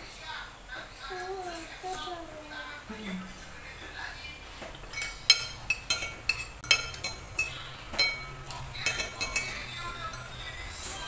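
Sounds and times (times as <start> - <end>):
cutlery clinking on ceramic plate: 4.6 - 11.0.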